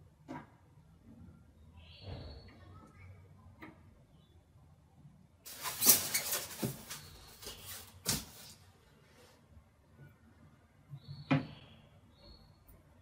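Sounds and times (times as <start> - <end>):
styrofoam rustling: 5.5 - 8.6.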